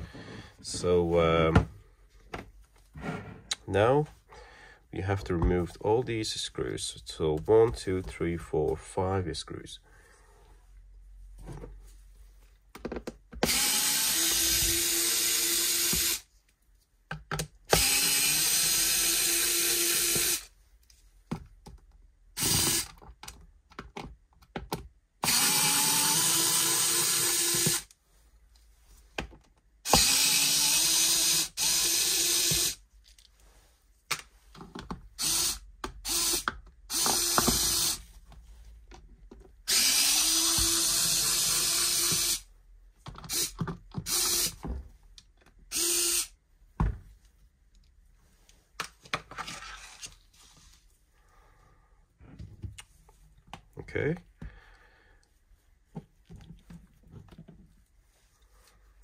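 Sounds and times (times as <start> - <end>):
electric screwdriver motor whine: 29.9 - 32.8, 45.7 - 46.3.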